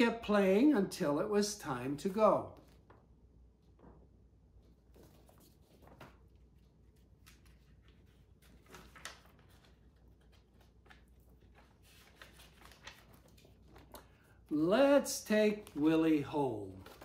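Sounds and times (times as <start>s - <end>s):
book pages rustling and turning: 2.4s - 17.0s.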